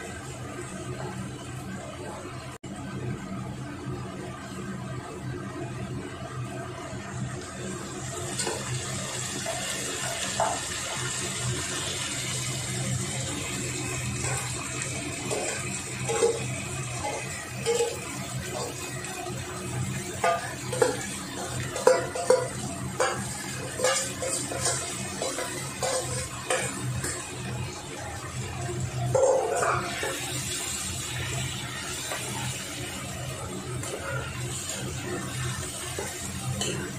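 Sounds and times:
onions sizzling in hot oil: 4.4s - 36.9s
spatula scraping a pan: 20.2s - 27.3s, 29.1s - 30.4s.

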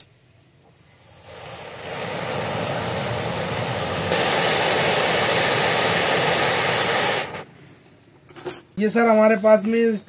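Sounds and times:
gas stove flame hissing: 0.7s - 7.5s.

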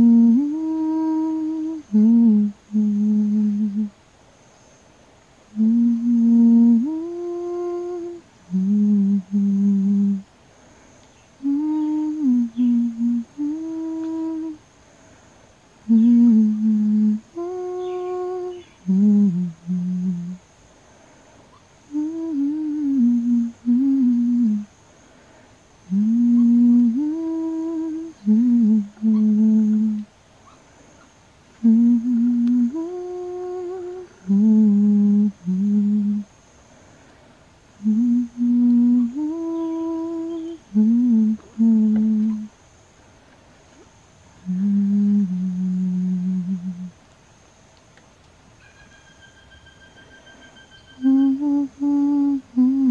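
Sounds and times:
person humming a slow tune: 0.0s - 4.0s, 5.5s - 10.3s, 11.4s - 14.6s, 15.8s - 20.5s, 21.8s - 24.8s, 25.8s - 30.1s, 31.6s - 36.4s, 37.8s - 42.6s, 44.4s - 47.0s, 50.4s - 52.9s.

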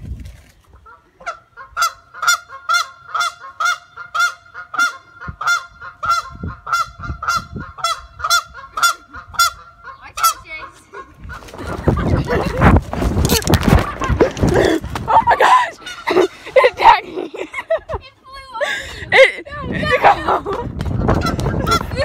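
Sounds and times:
goose honking: 0.8s - 11.6s, 15.5s - 16.4s.

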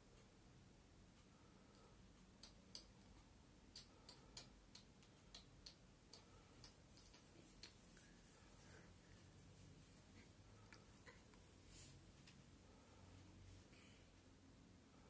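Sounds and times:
faint sharp clicks: 1.7s - 7.8s.

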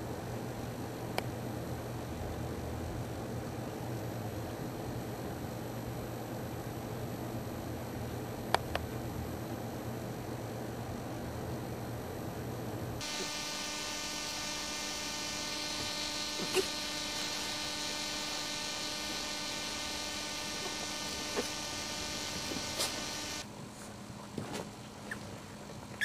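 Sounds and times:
electric buzz: 13.0s - 23.5s.

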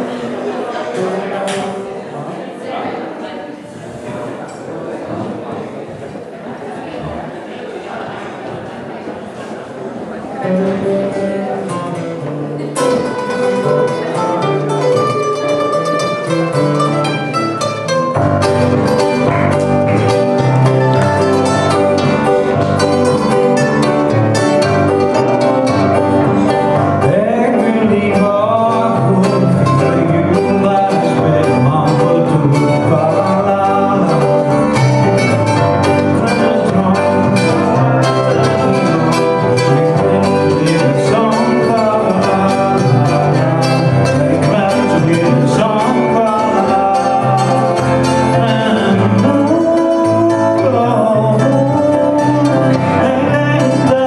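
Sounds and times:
strummed acoustic guitars: 0.0s - 2.3s, 9.4s - 54.0s
keyboard: 10.1s - 54.0s.

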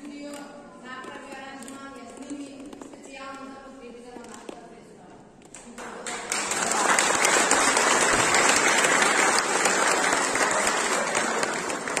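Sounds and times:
audience applauding: 5.8s - 12.0s.

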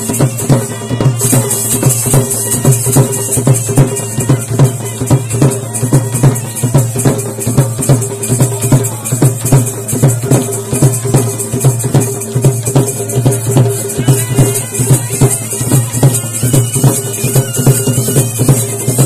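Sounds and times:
drums beating fast rhythm: 0.0s - 19.0s
rattling shaker: 0.0s - 19.0s.

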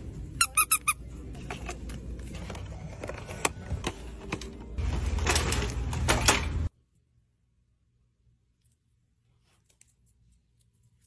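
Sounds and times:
dog toy squeaking: 0.4s - 1.1s
items rattling in metal cart: 4.2s - 6.7s.

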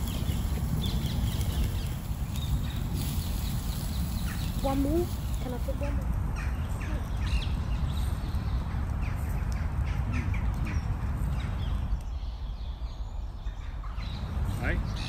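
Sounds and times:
faint bird calls: 0.0s - 7.6s
steady low rumble: 0.0s - 15.0s.

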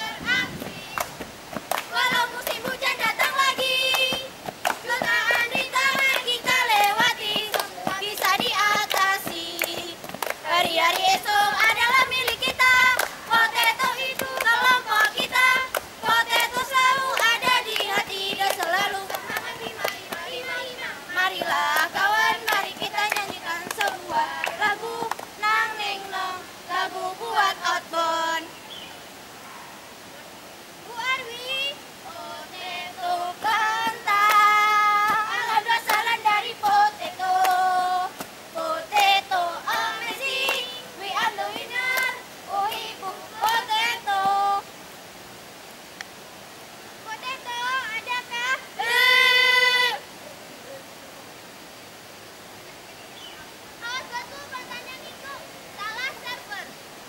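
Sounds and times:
children singing together: 0.0s - 0.9s, 1.9s - 28.5s, 32.1s - 44.6s
hand clapping: 1.0s - 20.3s, 21.4s - 25.3s, 33.4s - 36.8s, 37.4s - 37.6s, 38.9s - 42.1s, 42.7s - 43.7s
high-pitched voice singing: 47.2s - 50.0s.

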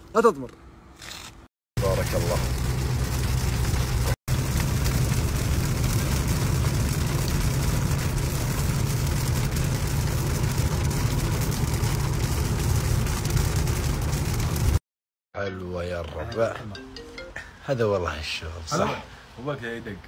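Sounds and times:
car road and engine rumble: 0.0s - 14.8s
rain on glass: 1.8s - 14.8s
tyres hissing on wet road: 1.8s - 14.8s.

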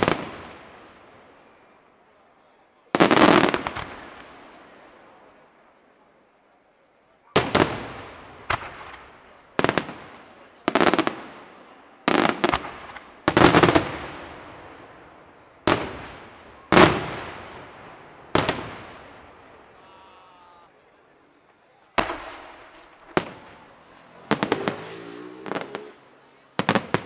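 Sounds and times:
firework shells bursting: 22.0s - 24.8s.

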